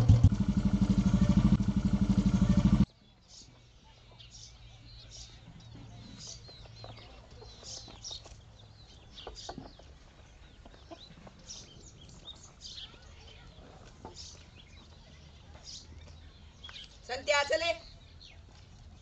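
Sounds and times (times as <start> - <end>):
chickens clucking: 5.7 - 12.3.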